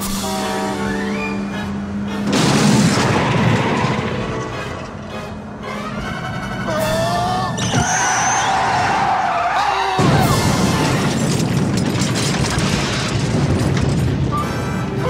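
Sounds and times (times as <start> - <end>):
music: 0.0 - 2.4, 4.3 - 7.7, 14.3 - 15.0
car tyres squealing: 0.7 - 2.2, 3.2 - 11.0
loud impact: 2.3 - 4.5
long rumbling noise: 10.0 - 15.0.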